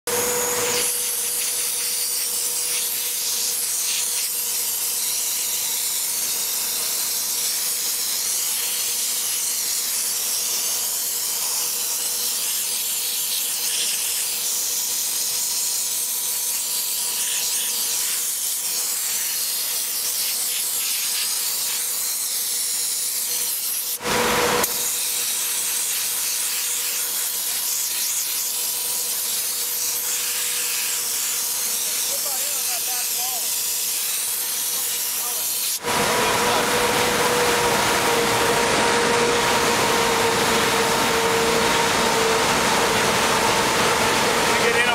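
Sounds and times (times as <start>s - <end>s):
spray jet hissing: 0.6s - 44.9s.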